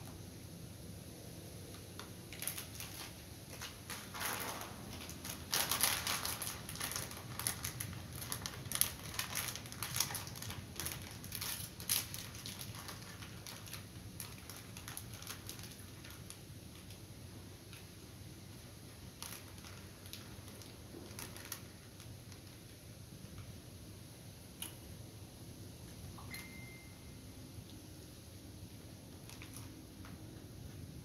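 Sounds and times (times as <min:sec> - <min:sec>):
plastic snack packet crinkling: 0:02.0 - 0:17.0, 0:18.9 - 0:23.4, 0:29.1 - 0:30.2.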